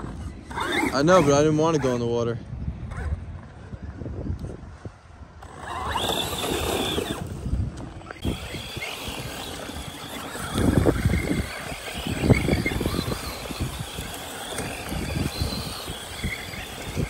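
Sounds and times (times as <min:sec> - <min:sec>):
electric motors whining: 0:05.4 - 0:17.0.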